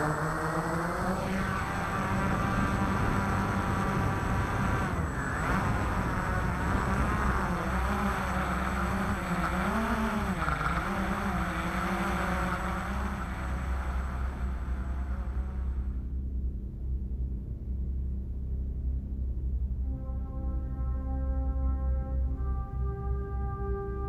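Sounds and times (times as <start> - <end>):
quadcopter motors whirring: 0.0 - 16.0.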